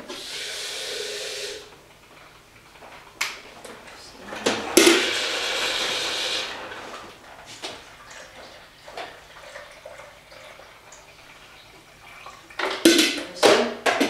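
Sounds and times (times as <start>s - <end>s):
steam hissing: 0.0s - 1.8s, 3.4s - 7.8s
hot water pouring: 0.0s - 13.0s.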